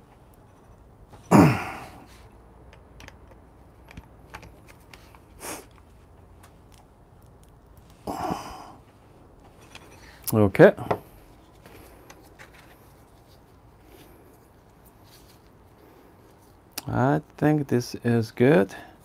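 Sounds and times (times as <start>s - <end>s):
man sighing: 1.3s - 2.2s, 8.0s - 8.8s
sniff: 5.4s - 5.7s.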